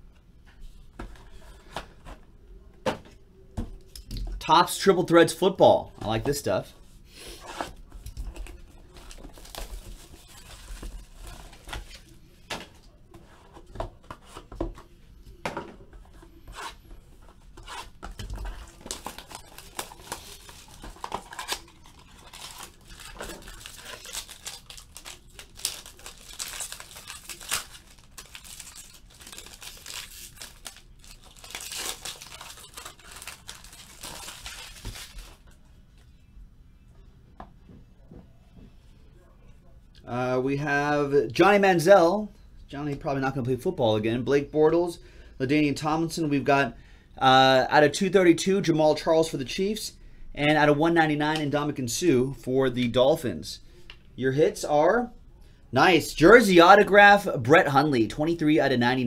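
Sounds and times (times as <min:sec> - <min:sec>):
plastic wrap crinkling: 0:18.2 - 0:35.6.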